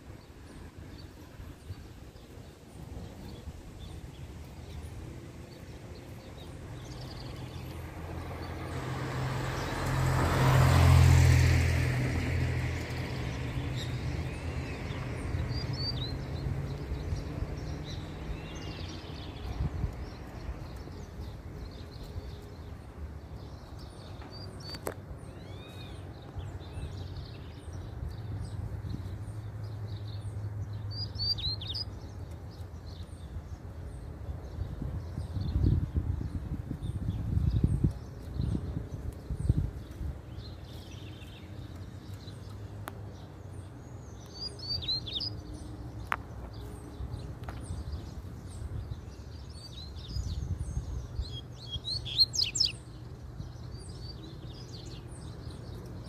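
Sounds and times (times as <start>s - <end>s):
birds chirping song: 0.0s - 56.0s
low engine hum: 0.0s - 56.0s
vehicle passing: 3.4s - 24.7s.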